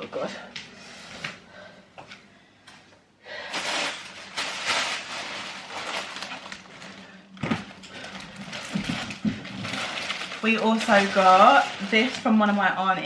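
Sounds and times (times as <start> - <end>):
plastic packaging crinkling: 3.4 - 13.0.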